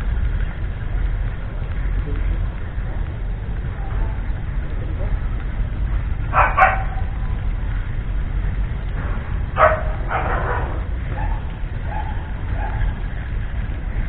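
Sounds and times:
low rumble: 0:00.0 - 0:14.0
dog barking: 0:06.3 - 0:07.2, 0:09.6 - 0:13.1.

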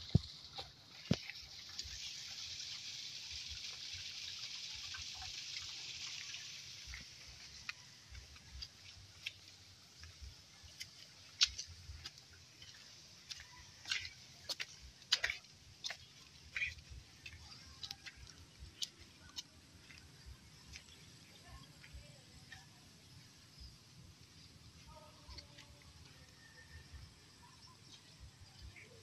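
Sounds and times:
footsteps on stony path: 0:06.8 - 0:22.7.

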